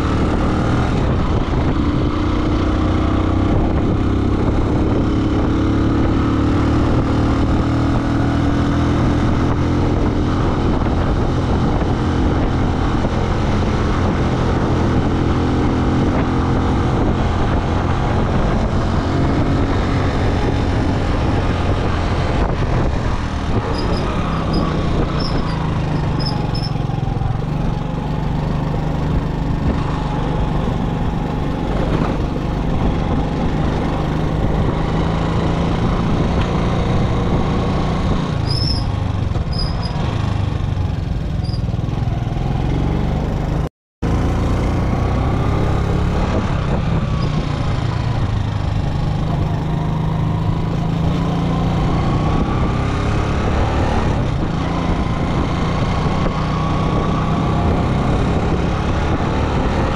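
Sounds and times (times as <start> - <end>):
road and wind noise: 0.0 - 59.9
faint high squeaks: 23.7 - 26.8, 38.4 - 40.0, 41.4 - 41.7.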